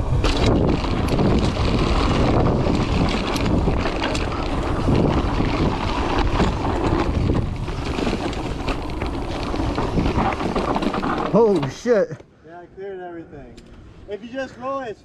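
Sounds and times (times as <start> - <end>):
wind rumbling on microphone: 0.0 - 11.6
tyres crunching on dirt trail: 0.0 - 12.1
bike knocks and rattles: 0.1 - 12.0.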